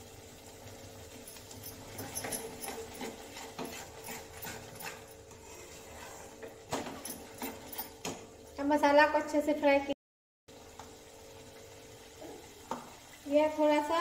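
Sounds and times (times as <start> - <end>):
spices frying: 0.0 - 9.9, 10.5 - 14.0
metal spatula scraping a pan: 1.7 - 8.1.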